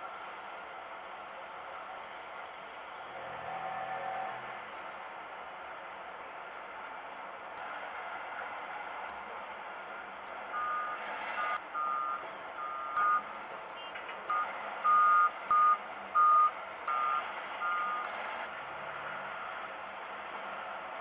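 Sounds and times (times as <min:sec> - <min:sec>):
two-tone warning beeps: 0:10.6 - 0:18.1.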